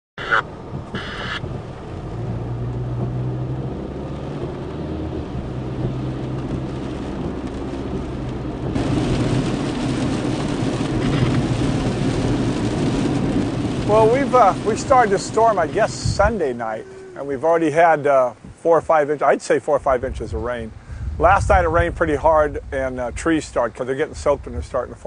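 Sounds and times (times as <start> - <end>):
car engine and road hum: 0.2 - 18.6
rain hissing: 0.2 - 19.4
rain falling on a puddle: 0.5 - 18.0.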